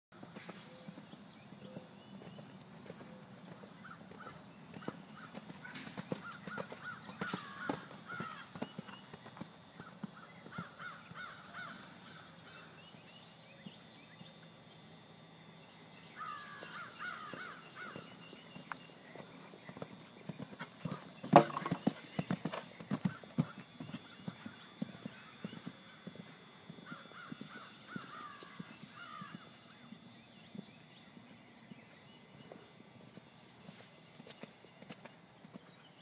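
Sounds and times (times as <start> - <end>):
sharp hoof clicks: 1.8 - 11.8, 16.6 - 29.5
horse hoofbeats on sand: 16.6 - 31.9.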